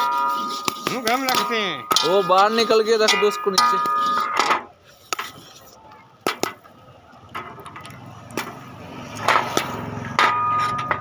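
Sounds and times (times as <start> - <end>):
ringing metallic clang: 0.0 - 4.7, 9.2 - 11.0
metal sieve and pan clattering: 0.0 - 5.4, 9.2 - 11.0.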